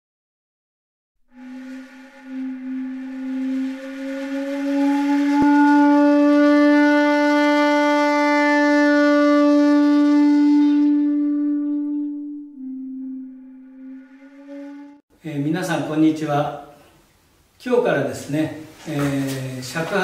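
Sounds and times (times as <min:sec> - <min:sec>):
shakuhachi low note: 0:01.3 - 0:15.0.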